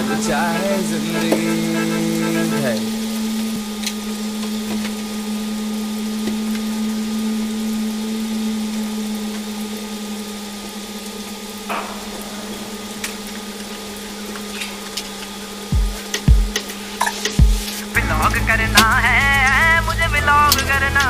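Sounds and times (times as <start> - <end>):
low machine hum: 0.0 - 21.0
hiss: 10.6 - 18.0.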